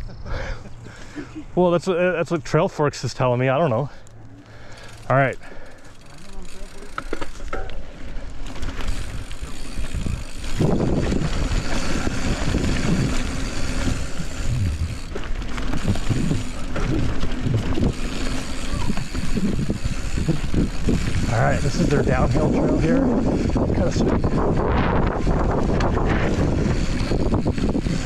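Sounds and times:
bike tyres on dirt trail: 0.2s - 28.0s
wind on microphone: 9.0s - 15.1s, 15.8s - 28.0s.

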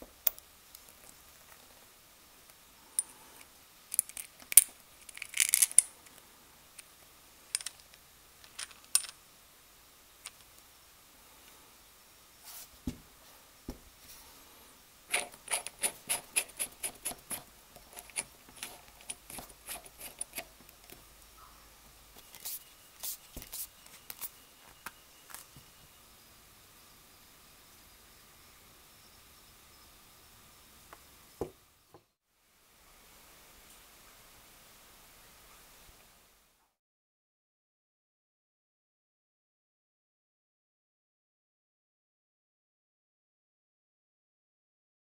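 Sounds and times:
small metal parts clicking: 3.9s - 6.2s, 7.5s - 9.2s, 15.1s - 21.0s.

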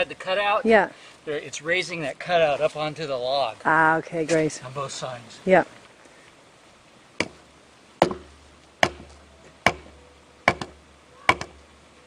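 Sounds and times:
hammer blows on wooden wedges: 8.0s - 11.6s.

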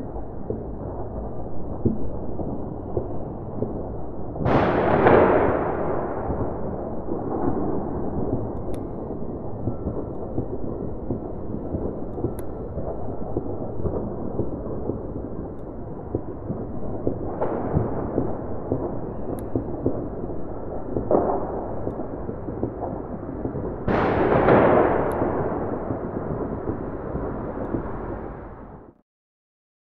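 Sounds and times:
distant fireworks booming: 0.0s - 29.0s
firework bang: 4.4s - 15.5s, 16.1s - 29.0s.

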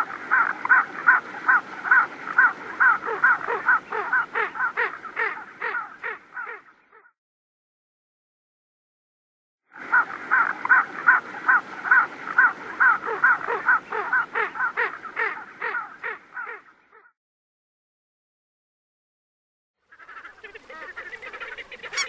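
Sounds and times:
duck calling rapidly: 20.0s - 22.0s.

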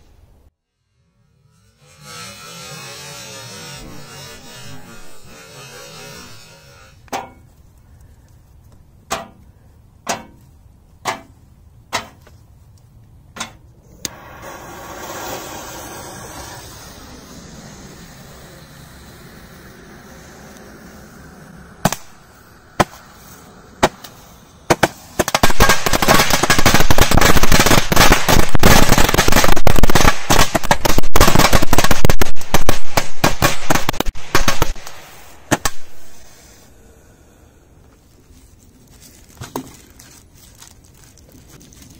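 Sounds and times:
short hiss: 14.0s - 25.2s
firework barrage of rapid bangs: 21.8s - 36.2s
firecracker bangs: 23.8s - 36.2s.

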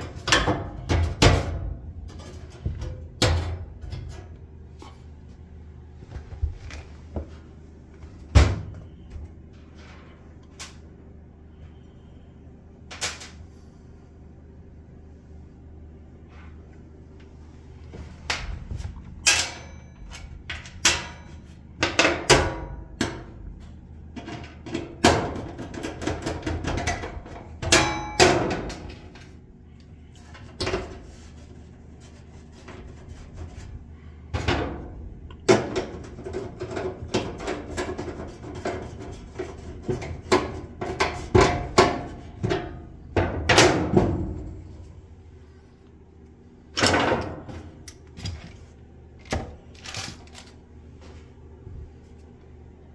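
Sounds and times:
tools clanking on sheet metal: 19.2s - 23.4s, 24.2s - 29.2s.

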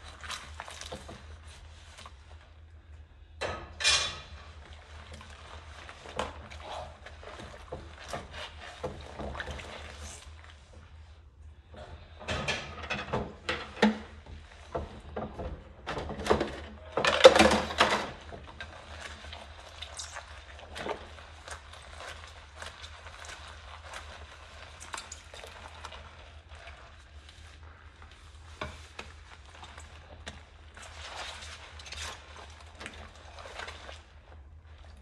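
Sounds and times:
sponge scrubbing: 0.0s - 2.6s, 4.5s - 11.3s, 17.6s - 35.0s
water sloshing in sink: 0.0s - 35.0s.

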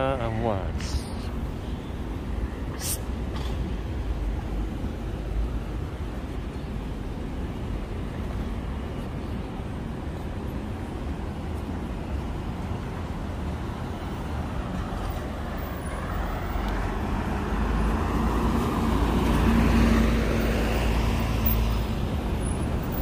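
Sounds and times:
bus engine rumble passing: 0.0s - 23.0s
steady traffic noise: 0.0s - 23.0s.

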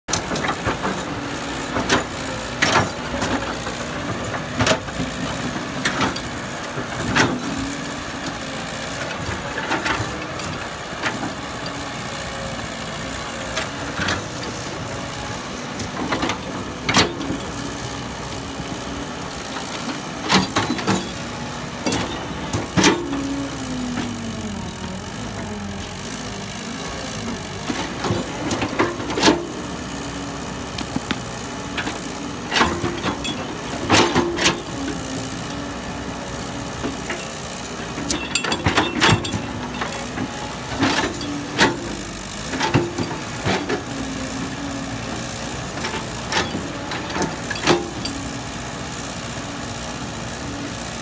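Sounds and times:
excavator diesel engine running: 0.1s - 51.0s.

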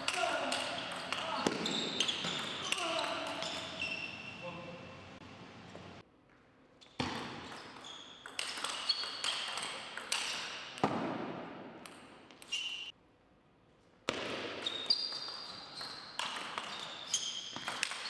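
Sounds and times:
table tennis ball rally: 0.0s - 4.4s, 7.0s - 12.8s, 14.1s - 18.0s.

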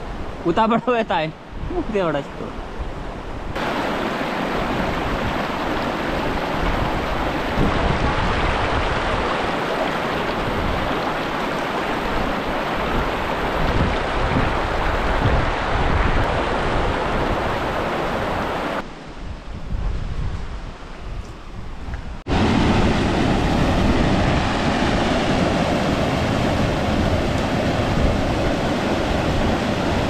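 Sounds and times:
river rushing over stones: 3.6s - 18.8s, 22.3s - 30.0s.

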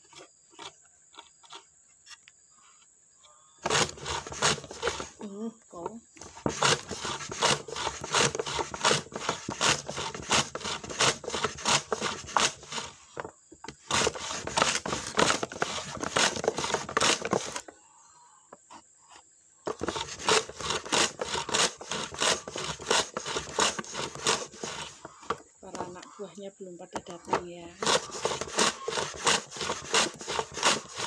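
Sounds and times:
wood-on-wood scraping strokes: 0.0s - 2.9s, 3.6s - 17.7s, 18.6s - 26.1s, 27.0s - 31.0s.

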